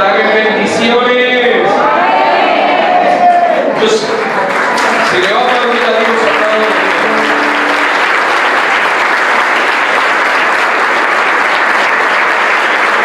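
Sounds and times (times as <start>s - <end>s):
crowd clapping: 3.2s - 13.0s.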